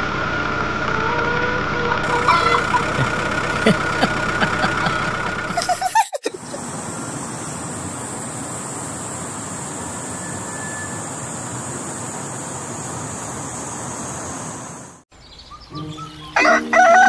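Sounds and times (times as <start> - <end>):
toy truck engine sound: 0.0 - 6.4
steady hiss: 6.2 - 15.0.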